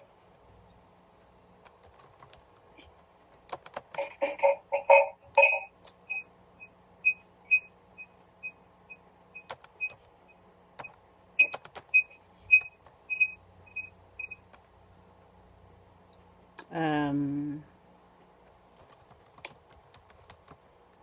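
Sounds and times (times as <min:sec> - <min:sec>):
keyboard typing clicks: 0:01.6 - 0:02.5, 0:03.3 - 0:06.2, 0:09.4 - 0:10.1, 0:10.8 - 0:13.3.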